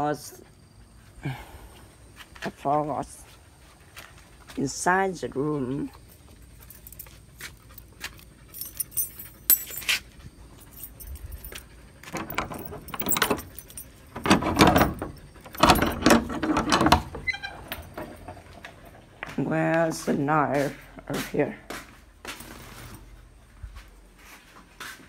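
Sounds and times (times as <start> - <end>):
keys jangling against padlock: 6.6 - 19.1
metal bolt rattling and scraping: 10.6 - 19.3.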